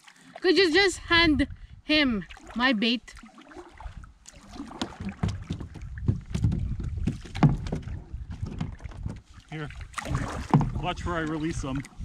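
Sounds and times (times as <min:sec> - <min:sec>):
kayak hull knocking: 0:04.3 - 0:11.9.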